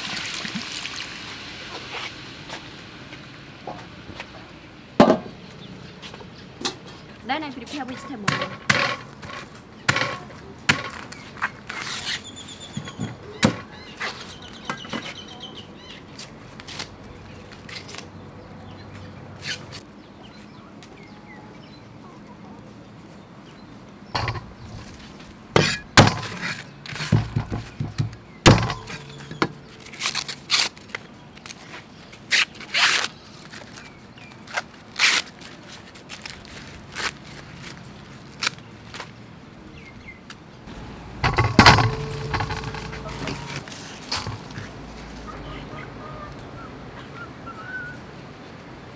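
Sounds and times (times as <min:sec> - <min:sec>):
corn cobs set in metal bowl: 0:41.2 - 0:44.7.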